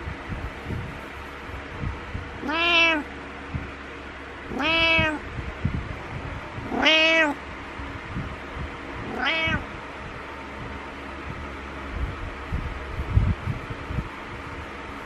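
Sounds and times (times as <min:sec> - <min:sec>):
cat meowing: 0:02.4 - 0:03.1, 0:04.5 - 0:05.2, 0:06.6 - 0:07.4, 0:09.0 - 0:09.7.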